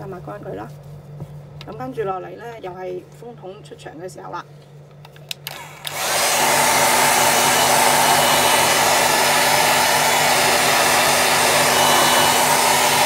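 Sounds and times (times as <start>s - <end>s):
hair dryer switch clicks: 5.3s - 6.3s
hair dryer blowing: 5.4s - 13.0s.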